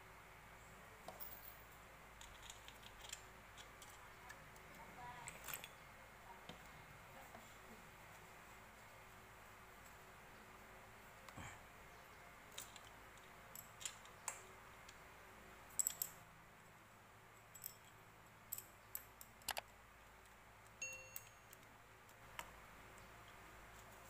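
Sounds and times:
metal chain clinking: 0:01.1 - 0:04.0, 0:04.7 - 0:05.9, 0:12.5 - 0:14.2, 0:15.7 - 0:16.2, 0:17.3 - 0:19.4, 0:20.8 - 0:21.6
short metallic ring: 0:20.8 - 0:21.6.

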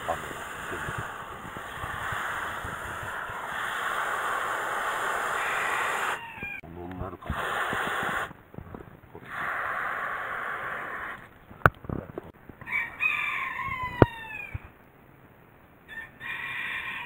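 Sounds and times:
hose water rushing into soil: 0:00.0 - 0:06.3, 0:07.1 - 0:08.4, 0:09.1 - 0:11.3.

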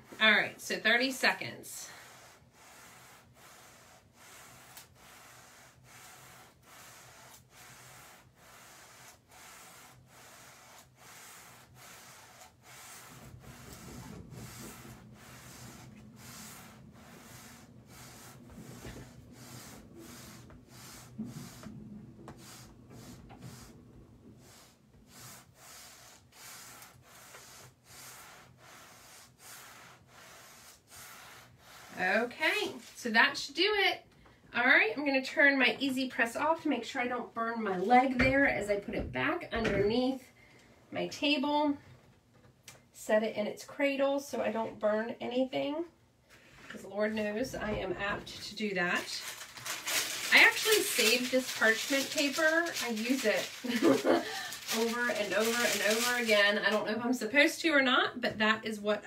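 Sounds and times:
heat press rubbing on paper: 0:00.0 - 0:33.0, 0:47.1 - 0:56.9.

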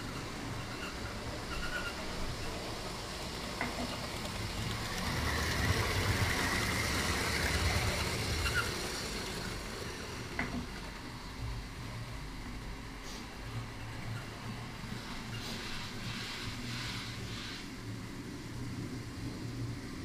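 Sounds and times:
model train rumbling and whining: 0:00.0 - 0:20.0.

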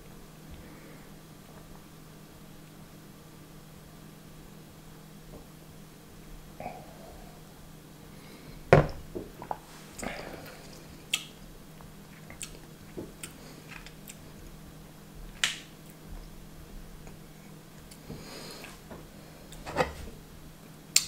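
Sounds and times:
lip smacks and mouth clicks: 0:11.1 - 0:14.2.

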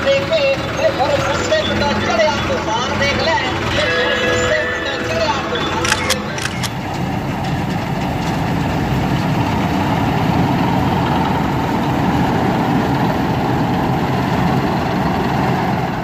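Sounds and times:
diesel engine drone: 0:00.0 - 0:16.0
mechanical rattle: 0:05.8 - 0:07.1.

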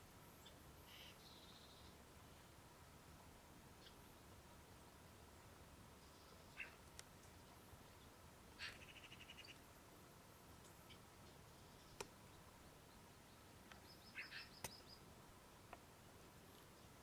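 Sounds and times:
faint distant bird chirps: 0:00.0 - 0:02.6, 0:03.7 - 0:05.0, 0:05.9 - 0:09.8, 0:10.4 - 0:15.7.

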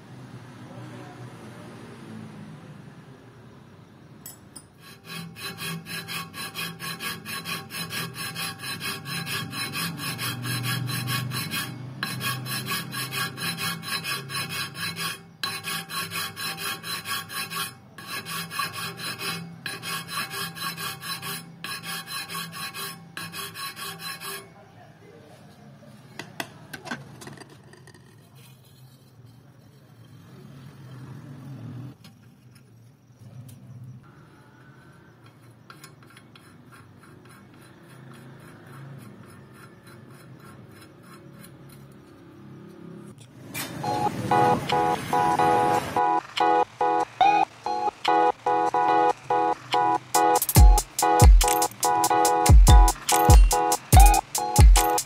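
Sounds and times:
hand file rasping on metal: 0:04.7 - 0:24.7, 0:35.2 - 0:42.4, 0:48.7 - 0:55.0.

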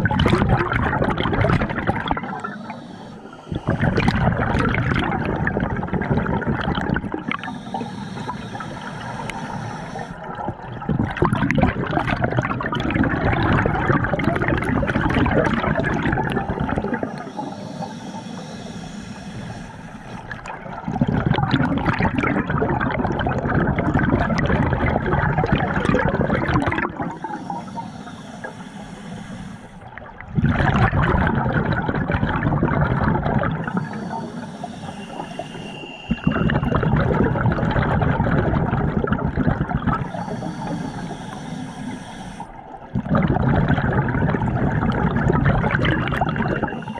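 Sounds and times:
exhaled bubbles underwater: 0:00.0 - 0:46.9
inhalation hiss: 0:02.2 - 0:04.4, 0:07.1 - 0:10.3, 0:15.7 - 0:20.4, 0:25.6 - 0:29.9, 0:33.5 - 0:36.8, 0:39.9 - 0:42.9, 0:45.7 - 0:46.9.

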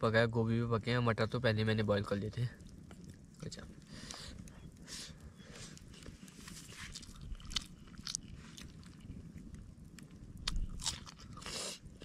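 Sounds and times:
person chewing rice: 0:05.6 - 0:12.0.

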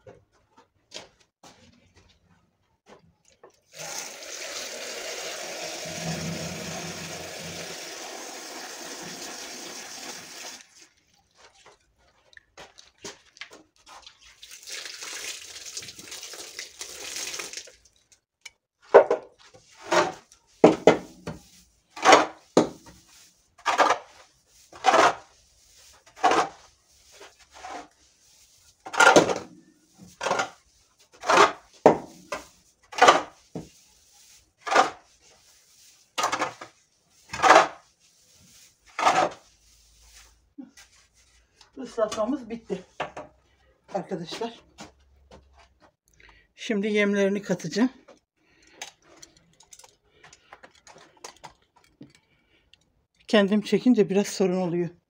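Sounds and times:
pitchfork swishing wet straw: 0:33.7 - 0:36.2, 0:36.8 - 0:41.4.

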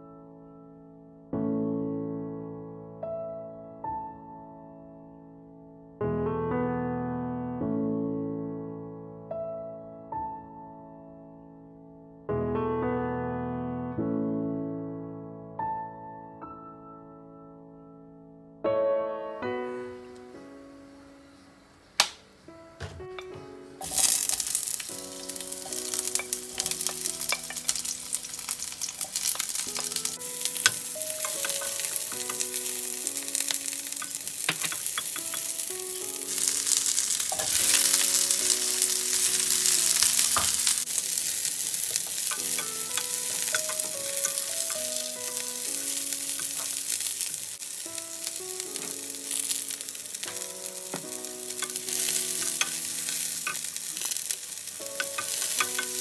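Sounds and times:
soft background music: 0:15.7 - 0:56.0
vegetables sizzling in hot oil: 0:23.2 - 0:56.0.

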